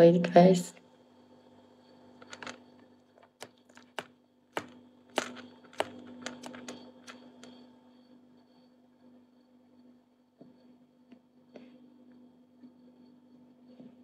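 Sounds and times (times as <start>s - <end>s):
fingers tapping touchscreen: 3.4s - 7.5s.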